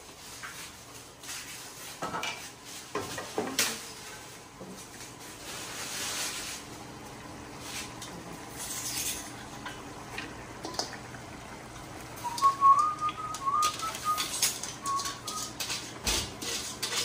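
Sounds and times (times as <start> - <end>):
leafy greens rustling in colander: 0.0 - 6.9, 7.5 - 9.5
person whistling a tune: 12.2 - 15.5.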